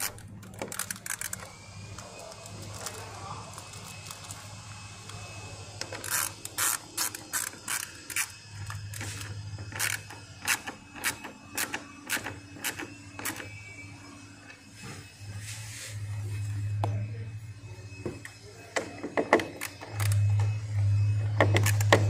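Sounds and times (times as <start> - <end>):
ratchet wrench clicking: 0.0 - 1.5, 5.9 - 13.5.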